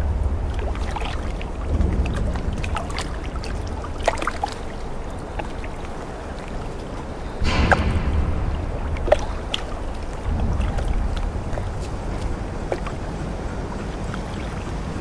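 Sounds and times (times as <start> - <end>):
low steady rumble: 0.0 - 15.0
small ticks and splashes: 0.0 - 15.0
water lapping around boat: 0.0 - 15.0
loud rush of noise: 7.4 - 15.0.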